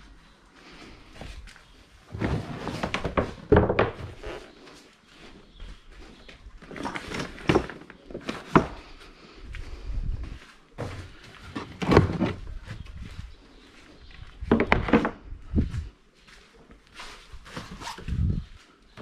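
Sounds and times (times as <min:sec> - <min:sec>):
floor panels clunking and scraping: 0:02.1 - 0:04.6, 0:06.6 - 0:09.2, 0:10.2 - 0:13.2, 0:14.2 - 0:15.9.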